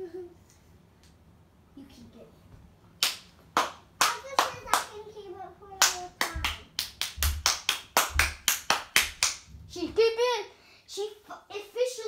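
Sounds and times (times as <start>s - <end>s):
hand clapping: 3.0s - 5.0s, 5.8s - 9.5s.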